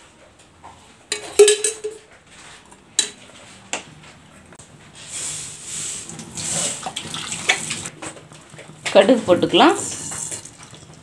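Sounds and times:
ladle clinking on metal cookware: 1.1 - 2.1.

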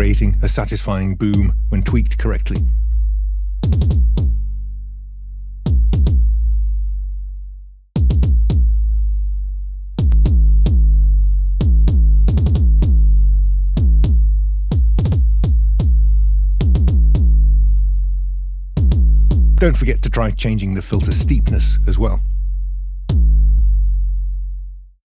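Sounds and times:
synthesized kick drum hits: 1.3 - 3.0, 3.6 - 4.6, 5.6 - 6.5, 8.0 - 8.9, 10.0 - 17.6, 18.8 - 20.0, 21.0 - 22.1, 23.0 - 23.8.

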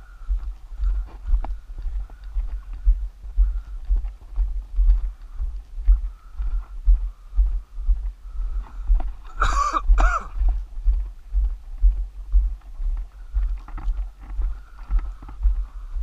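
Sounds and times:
footsteps on dirt road: 0.0 - 16.0.

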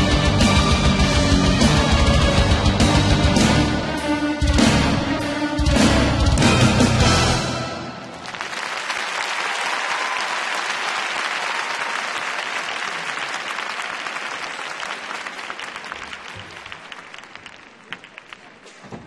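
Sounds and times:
crowd applauding: 8.0 - 18.8.

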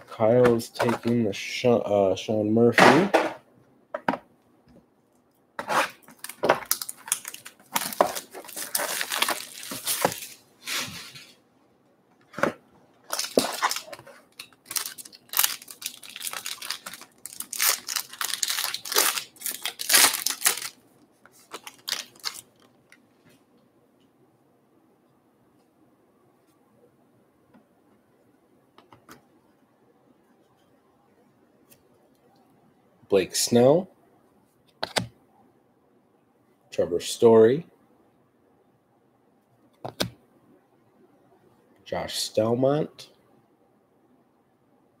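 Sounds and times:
card packaging tearing and crinkling: 5.6 - 11.2, 13.0 - 20.8, 21.4 - 22.7.

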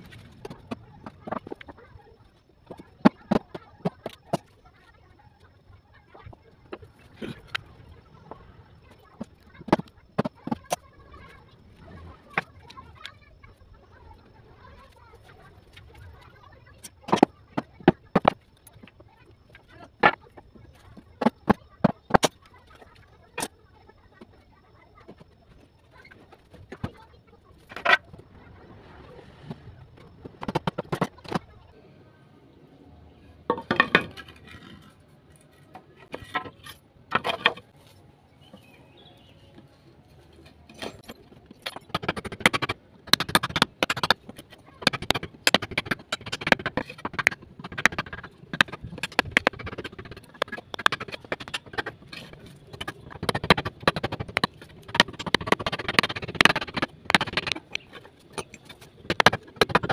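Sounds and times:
hammer striking chisel: 40.8 - 59.9.

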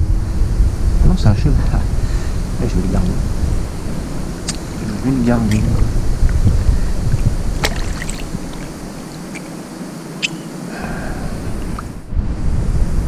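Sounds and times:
low rumble: 0.0 - 9.2
shallow river water sloshing: 6.1 - 10.8.

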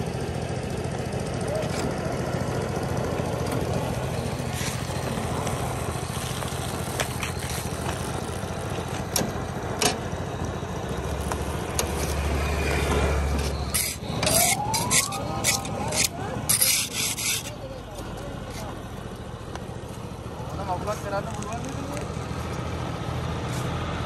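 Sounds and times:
road marking machine engine hum: 0.0 - 24.0
short rising whine: 12.0 - 16.1.

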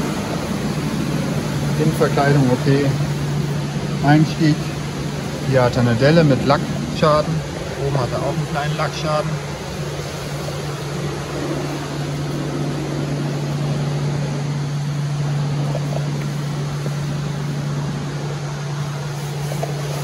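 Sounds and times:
low mechanical hum: 0.0 - 20.0
rushing air noise: 0.0 - 20.0.

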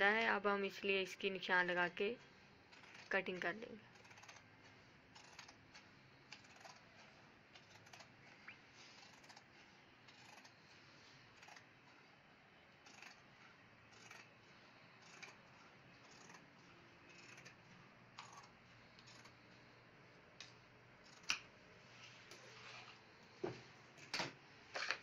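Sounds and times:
shears snipping cloth: 15.0 - 17.6.

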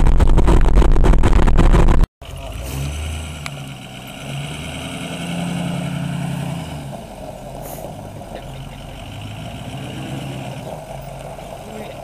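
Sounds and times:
diesel truck engine running: 2.2 - 12.0.

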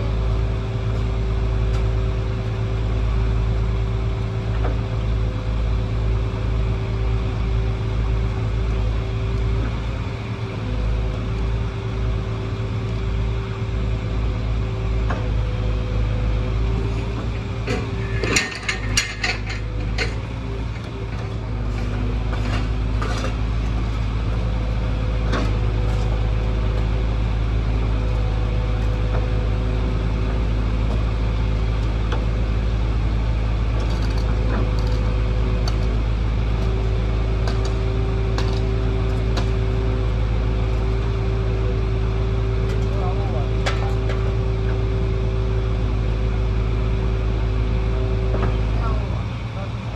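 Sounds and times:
diesel engine droning: 0.0 - 49.9
metallic clatter and clicks: 17.7 - 20.2, 33.8 - 35.0.

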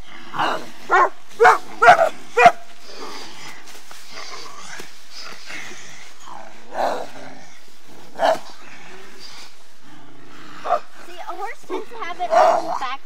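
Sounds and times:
girls barking like wolves: 0.4 - 2.7, 10.6 - 13.0.

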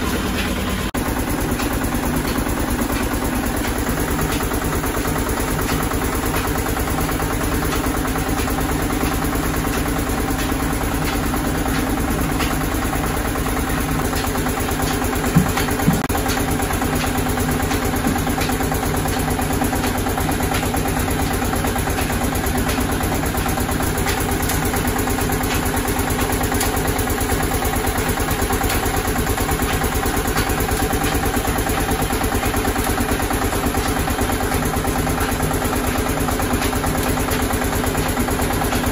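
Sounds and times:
oil press machine humming: 0.0 - 38.9
sharp knocks: 14.9 - 16.2.

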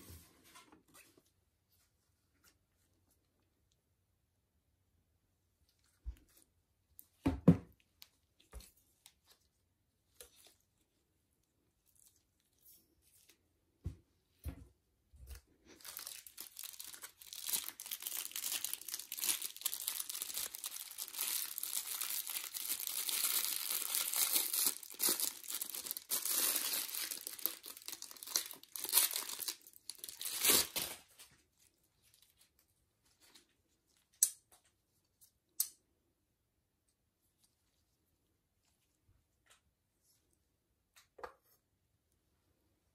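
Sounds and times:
plastic packaging crinkling and tearing: 15.7 - 32.6.

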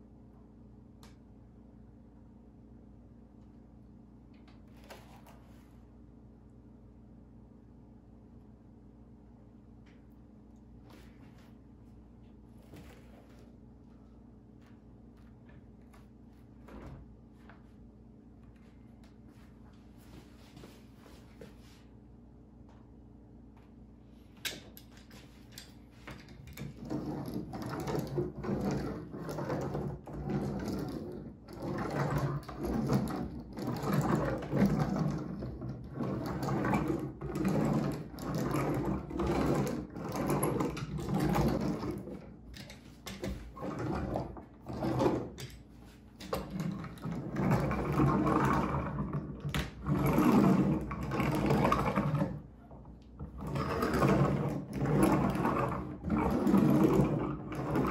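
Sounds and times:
rubber roller rumbling over panel: 25.1 - 57.9.

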